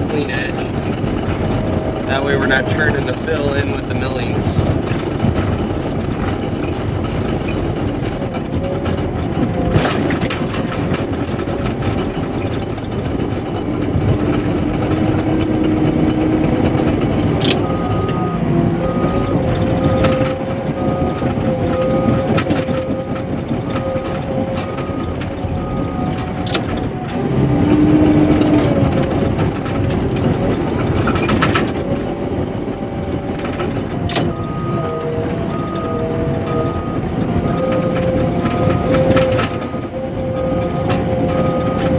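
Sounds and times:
bulldozer diesel engine running: 0:00.0 - 0:41.9
tracks and blade clanking: 0:00.0 - 0:41.9
backup alarm beeping: 0:17.6 - 0:26.4, 0:34.3 - 0:41.9.

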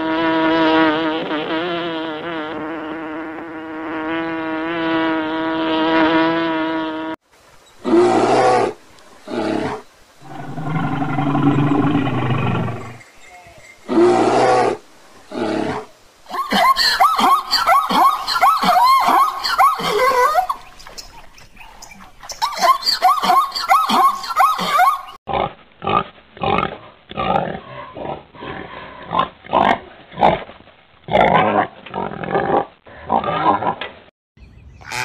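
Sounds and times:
animal calls: 0:07.8 - 0:15.9
steady pitched drone: 0:10.2 - 0:13.0.

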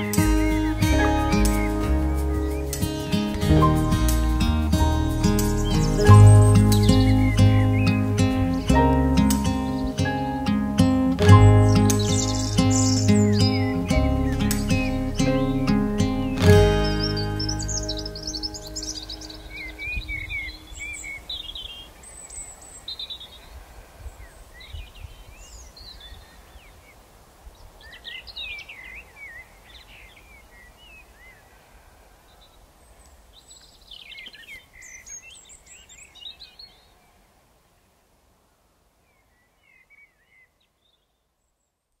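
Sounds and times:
birds chirping and warbling: 0:00.0 - 0:27.0, 0:27.6 - 0:37.3
low outdoor rumble: 0:00.2 - 0:20.8.

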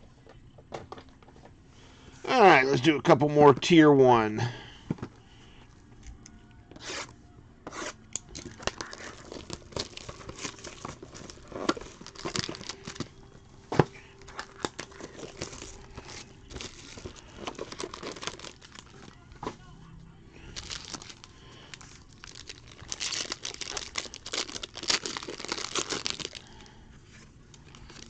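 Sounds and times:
plastic wrap tearing and crinkling: 0:08.4 - 0:13.1, 0:13.9 - 0:19.2, 0:20.4 - 0:26.8, 0:27.6 - 0:28.0.

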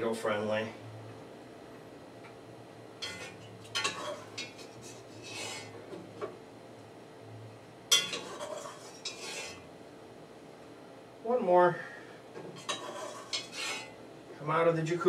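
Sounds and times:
steady low hum: 0:00.0 - 0:15.0
utensils scraping metal pot: 0:03.0 - 0:05.7, 0:07.9 - 0:09.7, 0:12.6 - 0:14.0.

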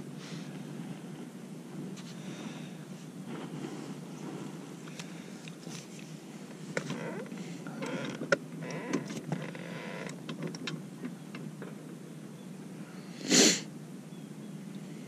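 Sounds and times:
person sniffing: 0:13.2 - 0:13.7.

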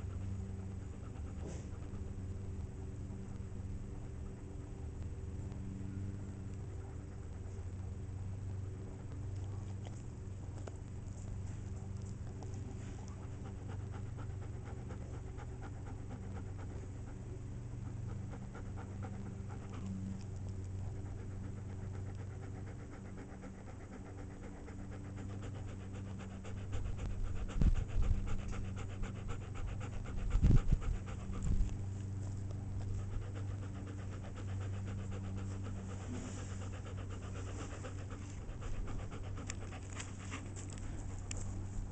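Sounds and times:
dog panting: 0:00.0 - 0:04.8, 0:05.5 - 0:41.9
low hum: 0:00.0 - 0:41.9
low rumbles: 0:00.0 - 0:41.9.

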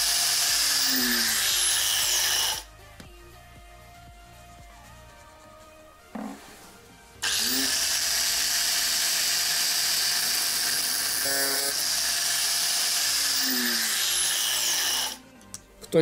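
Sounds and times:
angle grinder cutting metal: 0:00.0 - 0:02.7, 0:07.2 - 0:15.2.

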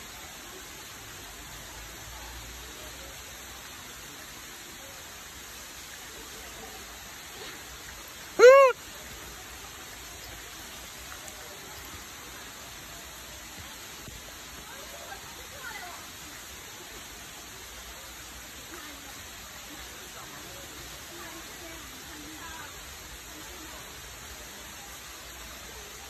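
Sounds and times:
steady background hiss: 0:00.0 - 0:26.0
monkey coo call: 0:08.4 - 0:08.8.

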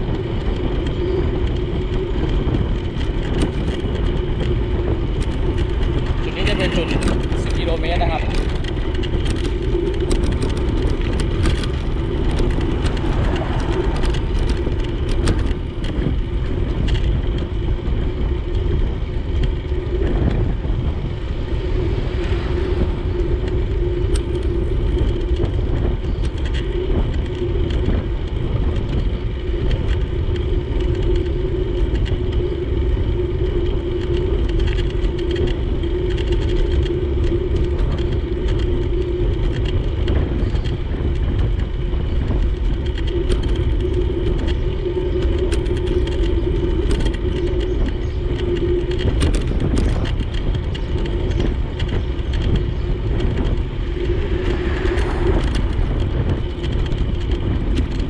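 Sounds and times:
wind rumbling on microphone: 0:00.0 - 0:58.0
steady mid-pitched hum: 0:01.0 - 0:31.6, 0:47.5 - 0:58.0.

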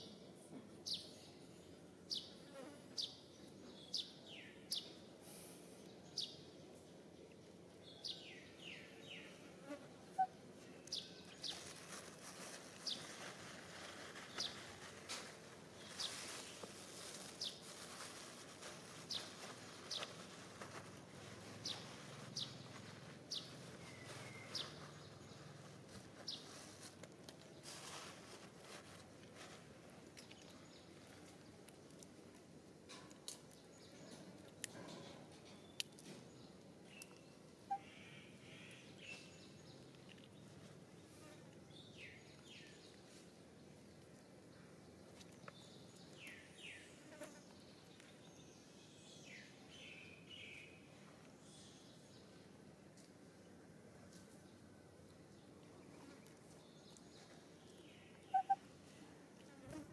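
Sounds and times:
high falling chirps: 0:58.3 - 0:58.6.

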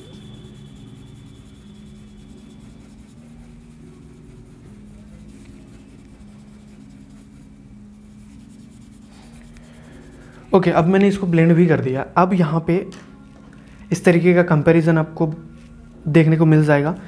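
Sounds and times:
blending tool scratching paper: 0:00.0 - 0:10.9
soft background music: 0:00.0 - 0:17.0.

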